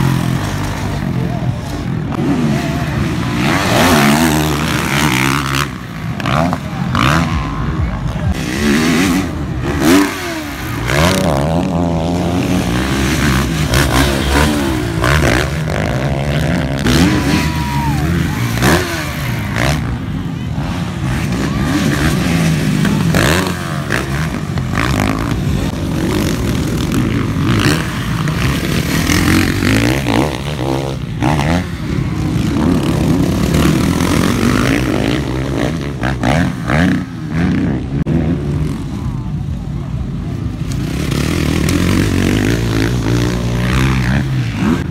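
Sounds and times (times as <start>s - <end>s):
dirt bike engines revving: 0.0s - 44.9s.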